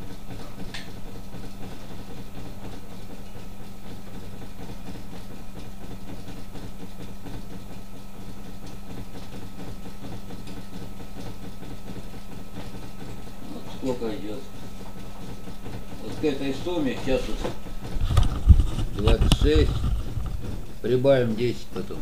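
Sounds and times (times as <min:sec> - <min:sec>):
hub motor humming: 0:00.0 - 0:22.0.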